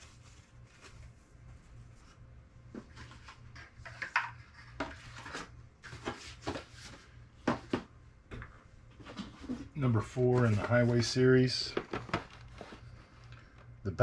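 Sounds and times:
faint low hum: 0.0 - 14.0
cardboard boxes knocking and rustling: 11.7 - 12.9.

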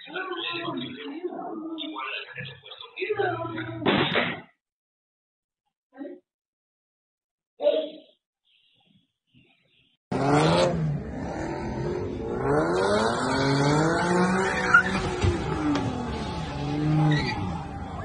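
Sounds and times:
car engine revving: 10.1 - 18.0
tyre squeal: 14.4 - 15.7, 16.8 - 17.8.

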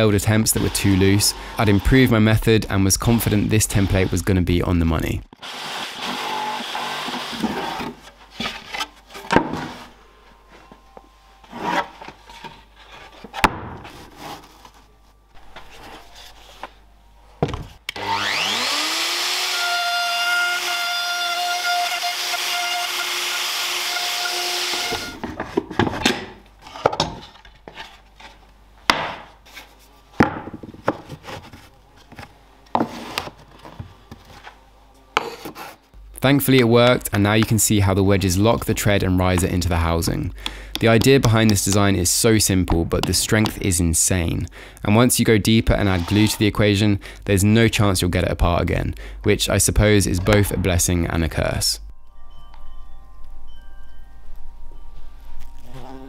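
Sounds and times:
electric router whining: 5.4 - 7.9, 17.8 - 25.2
wooden boards knocking and scraping: 25.2 - 27.9, 30.2 - 32.2.

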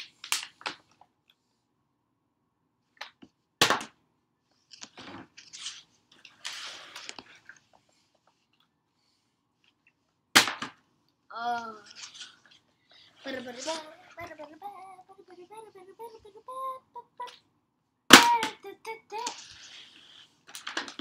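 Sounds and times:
plastic bottle hitting floor: 10.4 - 10.8.

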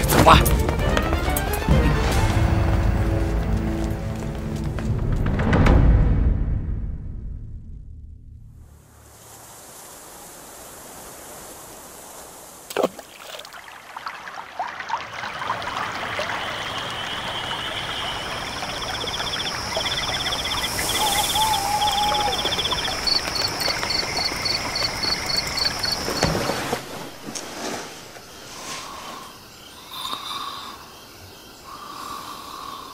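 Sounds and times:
stream of running water: 8.8 - 32.8
dull thump: 26.1 - 26.9.

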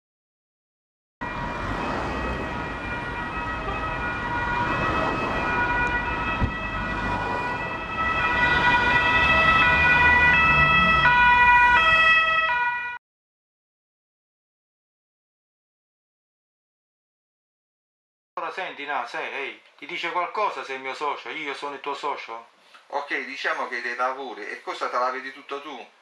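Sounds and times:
police siren: 1.2 - 13.0.

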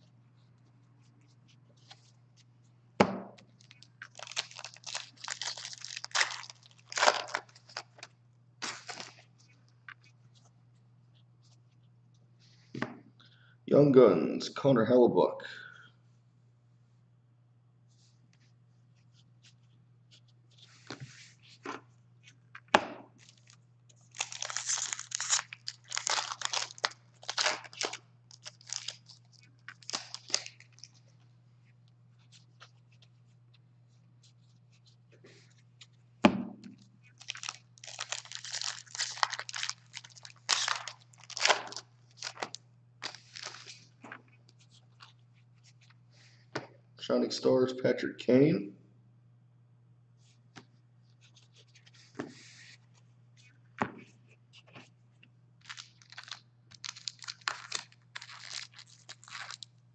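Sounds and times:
foil wrappers crinkling: 3.5 - 9.3, 23.2 - 31.1, 37.0 - 45.9, 55.6 - 59.8.

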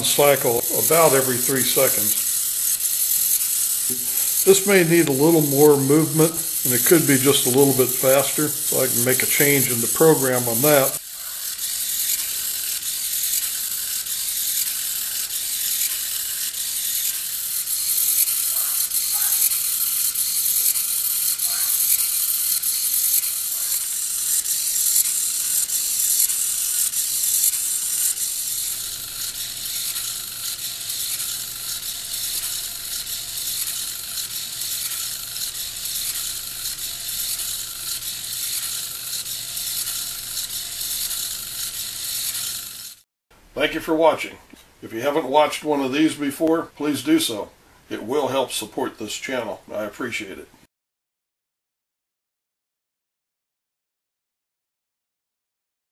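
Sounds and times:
servo motor clicking buzz: 0.0 - 43.0.

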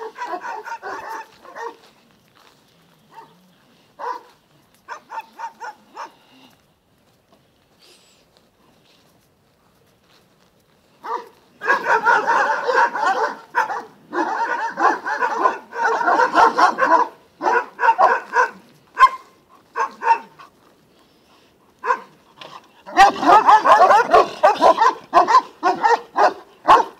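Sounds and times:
dogs barking: 0.0 - 1.9, 3.1 - 3.4, 4.0 - 4.3, 4.9 - 6.2, 11.0 - 20.4, 21.8 - 26.9.

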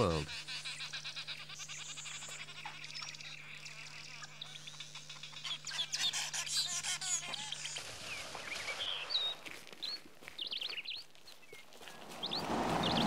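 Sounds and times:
wild birds chirping: 0.0 - 13.0.

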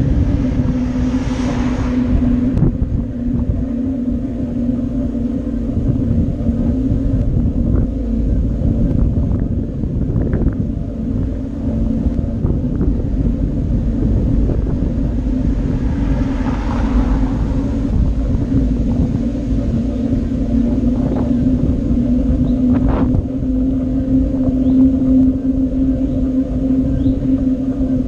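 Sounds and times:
bicycle rolling on road: 0.0 - 28.0.

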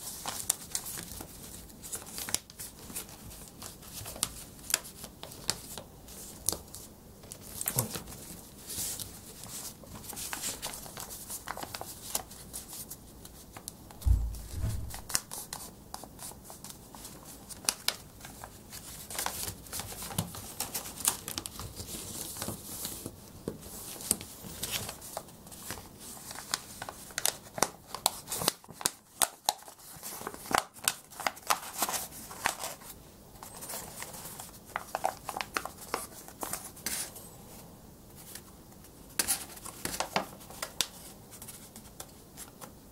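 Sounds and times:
paper rustling and crackling: 0.0 - 37.1, 38.2 - 42.7
dull low thump: 14.0 - 15.3.

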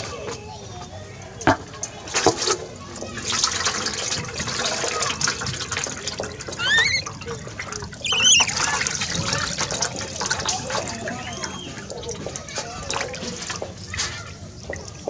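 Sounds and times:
water splashing into metal basin: 1.5 - 15.0
baby monkey squealing: 6.5 - 7.4, 8.0 - 9.5, 10.6 - 12.0.

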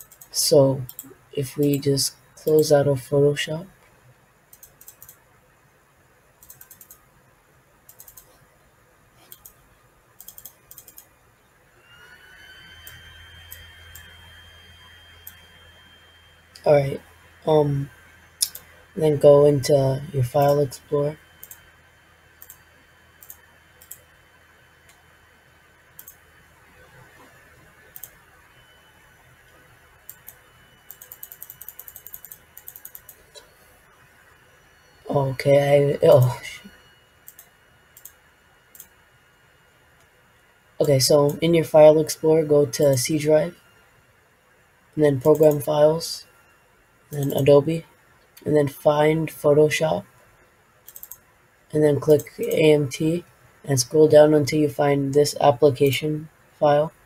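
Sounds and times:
keyboard keys clicking: 0.0 - 0.3, 30.1 - 33.2
computer mouse clicking: 0.0 - 1.8, 4.5 - 5.2, 6.4 - 7.0, 7.9 - 8.4, 9.2 - 9.6, 10.2 - 11.1, 12.7 - 14.2, 18.4 - 18.7, 21.4 - 21.7, 22.4 - 22.6, 23.2 - 24.1, 25.9 - 26.2, 27.8 - 28.2, 29.5 - 33.5, 37.2 - 39.0, 50.8 - 51.3.

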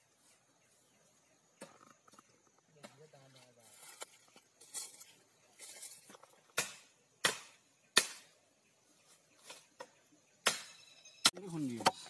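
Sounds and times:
blade chopping bamboo: 6.6 - 8.3.

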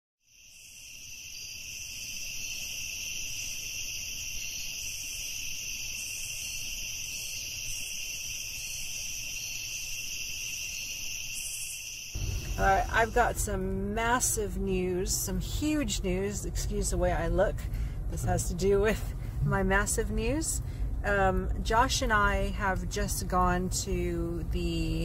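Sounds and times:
crickets chirring: 0.2 - 14.2.

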